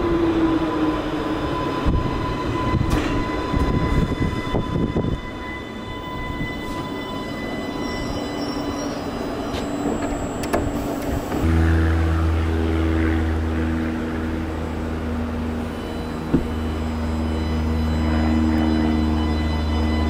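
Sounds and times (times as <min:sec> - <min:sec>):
electric train rumble with whines: 0:00.0 - 0:20.0
train motors humming: 0:08.9 - 0:20.0.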